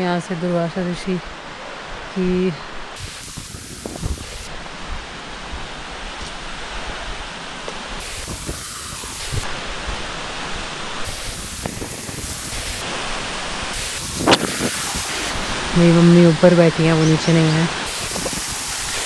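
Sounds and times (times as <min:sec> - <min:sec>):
rushing waterfall or wind: 0:00.0 - 0:19.0
footsteps on stony path: 0:03.8 - 0:13.2.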